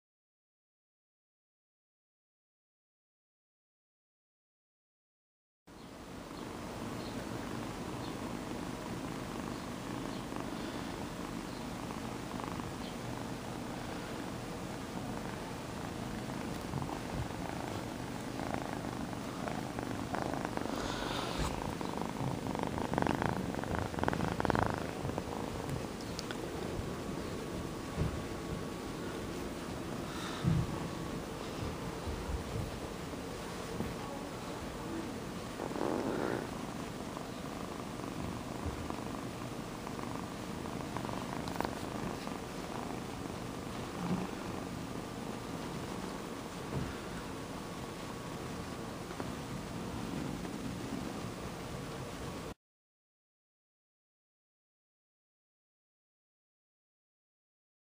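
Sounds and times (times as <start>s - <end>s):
kitten purring loudly: 6.8s - 47.5s.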